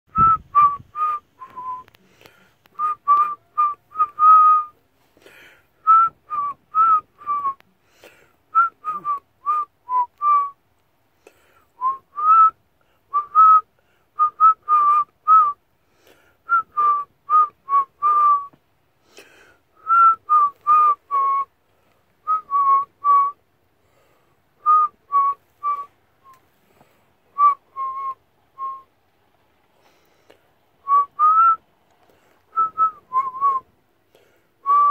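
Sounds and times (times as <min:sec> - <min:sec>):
woman whistling a tune: 0:00.1 - 0:01.9, 0:05.8 - 0:07.6, 0:08.5 - 0:10.6, 0:11.8 - 0:13.6, 0:16.5 - 0:18.6, 0:19.8 - 0:21.5, 0:22.3 - 0:23.4, 0:24.6 - 0:26.4, 0:27.4 - 0:28.9, 0:30.8 - 0:31.6, 0:32.5 - 0:33.6, 0:34.6 - 0:34.9.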